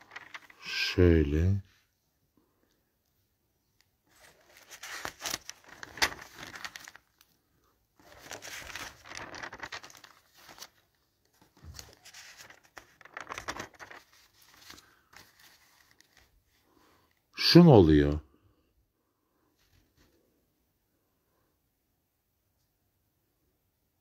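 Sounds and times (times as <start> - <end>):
paper rustling and crinkling: 0.0 - 1.0, 4.1 - 7.4, 8.0 - 16.6.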